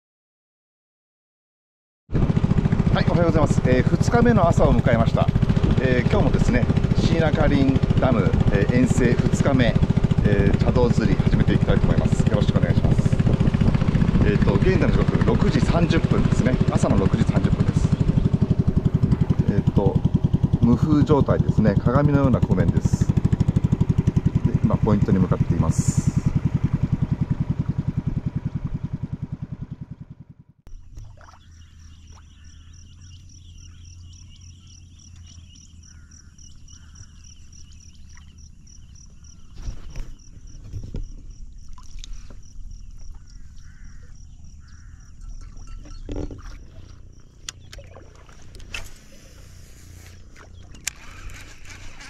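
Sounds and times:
boat engine running: 0:02.1 - 0:52.0
low hum: 0:02.2 - 0:52.0
bird calls: 0:03.0 - 0:13.6, 0:30.7 - 0:52.0.

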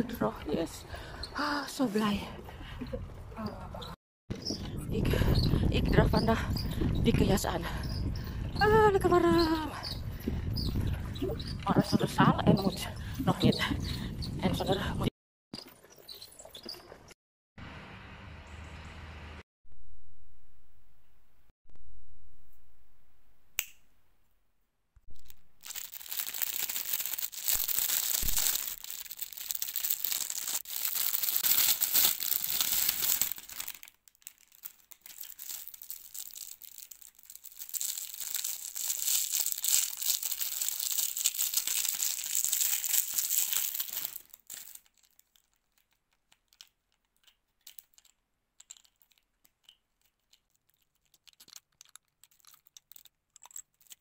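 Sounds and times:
close crinkling and rustling: 0:25.2 - 0:54.0.

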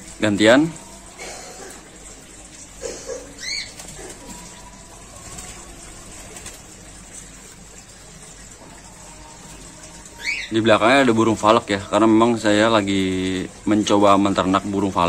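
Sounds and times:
faint water splashing: 0:00.0 - 0:15.0
wings flapping: 0:03.4 - 0:07.5.

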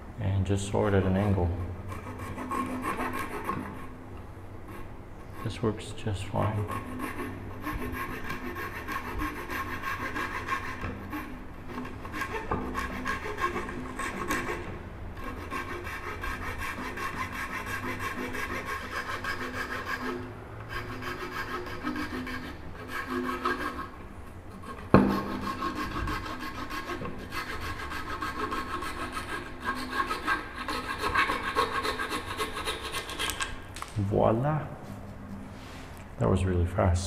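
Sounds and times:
hacksaw sawing wood: 0:01.2 - 0:03.9, 0:06.4 - 0:14.6, 0:15.2 - 0:33.5.

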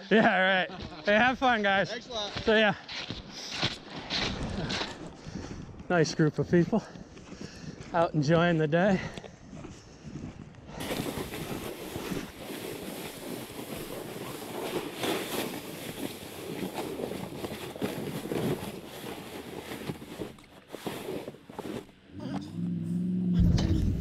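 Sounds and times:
snowshoe steps crunching: 0:00.2 - 0:05.6, 0:06.2 - 0:22.0
sled scraping over snow: 0:10.8 - 0:22.0.

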